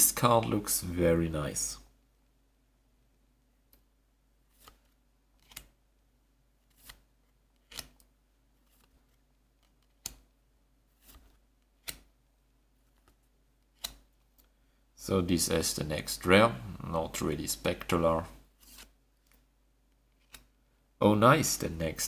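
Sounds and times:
trading cards swishing and snapping: 0:04.5 - 0:05.8, 0:06.6 - 0:10.3, 0:10.9 - 0:12.2, 0:12.8 - 0:14.5, 0:18.6 - 0:19.5, 0:20.1 - 0:20.6.

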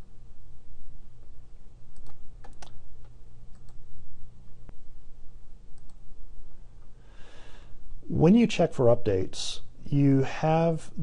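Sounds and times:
steady low hum: 0:00.0 - 0:11.0
computer mouse clicking: 0:02.0 - 0:03.8, 0:05.8 - 0:06.0.

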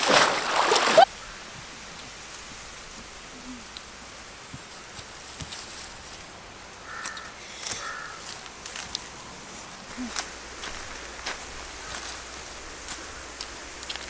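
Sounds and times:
faint outdoor ambience: 0:00.0 - 0:14.0
bare feet stepping on tree trunk: 0:06.9 - 0:14.0
short animal calls: 0:07.8 - 0:08.2.

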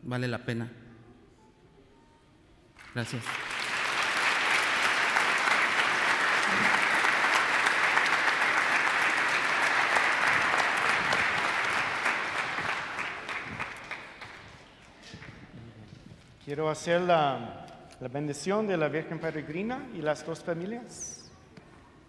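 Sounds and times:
congregation applauding: 0:02.8 - 0:15.7.

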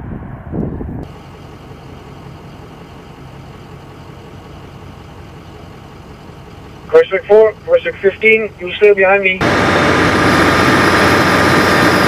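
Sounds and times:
vehicle engine idling: 0:01.0 - 0:12.0.

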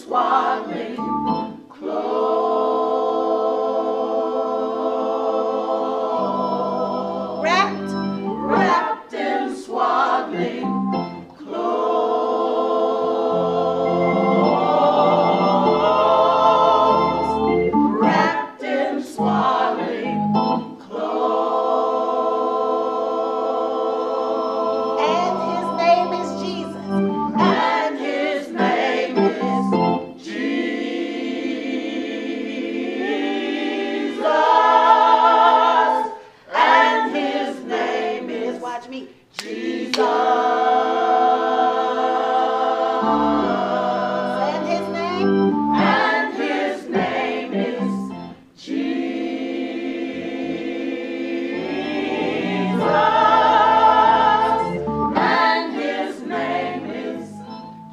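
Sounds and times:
choir singing: 0:00.0 - 0:57.9
organ accompaniment: 0:00.2 - 0:02.5, 0:04.5 - 0:09.0, 0:09.8 - 0:30.9, 0:42.1 - 0:48.5, 0:51.1 - 0:57.9.

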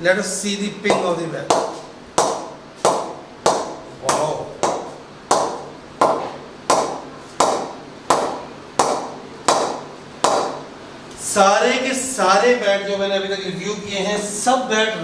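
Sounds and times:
cricket ball bouncing on bat: 0:00.8 - 0:10.7.

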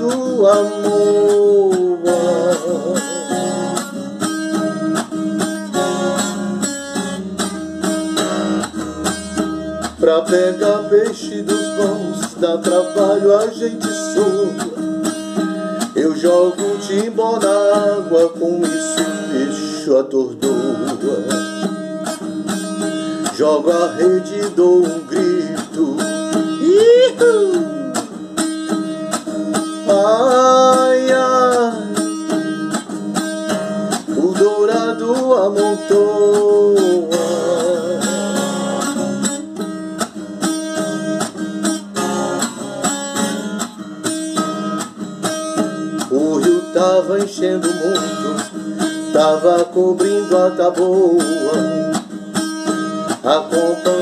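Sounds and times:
man singing: 0:00.0 - 0:05.0, 0:09.8 - 0:21.8, 0:23.0 - 0:28.5, 0:29.5 - 0:32.6, 0:33.9 - 0:39.4, 0:45.6 - 0:54.0
acoustic guitar strumming: 0:00.0 - 0:54.0.

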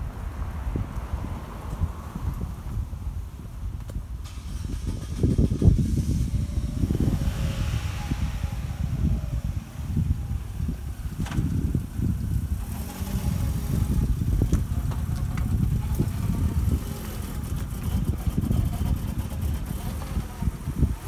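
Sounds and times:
engine and tyre rumble: 0:00.0 - 0:21.0
cars passing hiss: 0:04.2 - 0:14.4.

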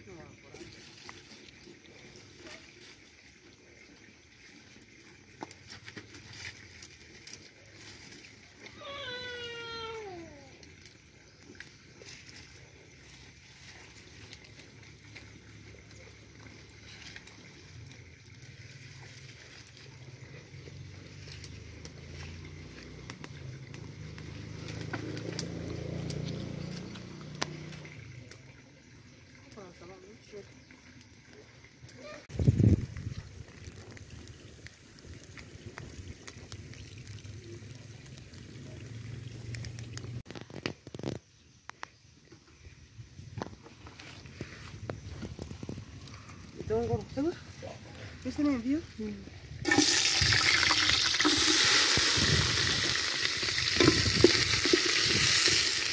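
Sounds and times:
wood fire crackling and popping: 0:04.7 - 0:08.6, 0:19.5 - 0:28.0, 0:32.0 - 0:41.8, 0:43.4 - 0:47.3, 0:49.6 - 0:55.9
oil pouring into metal pot: 0:49.6 - 0:55.9.

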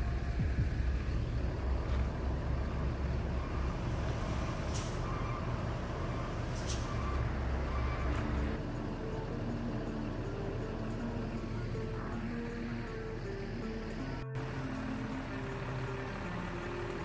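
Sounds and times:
bus and truck engines rumbling: 0:00.0 - 0:17.0
air brake hisses: 0:04.5 - 0:05.3, 0:06.5 - 0:07.3.

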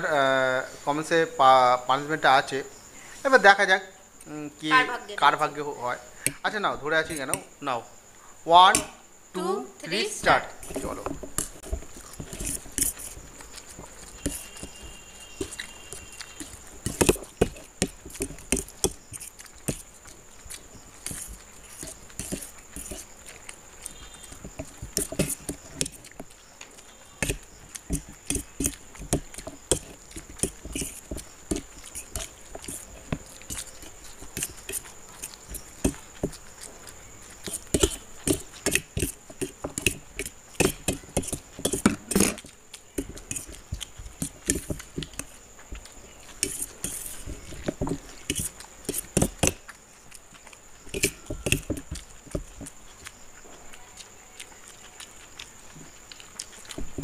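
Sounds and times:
noodles being slurped: 0:10.6 - 0:45.4, 0:46.1 - 0:50.3.

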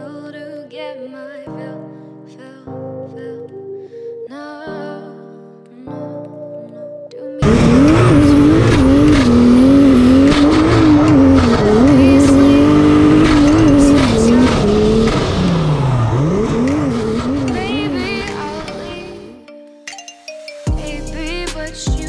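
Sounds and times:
tire squeal: 0:07.4 - 0:18.7
car engine revving: 0:07.4 - 0:19.3.

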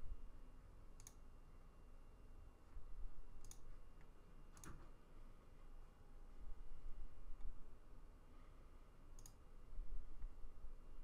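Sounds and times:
faint sharp clicks: 0:03.4 - 0:04.8, 0:09.2 - 0:09.4.

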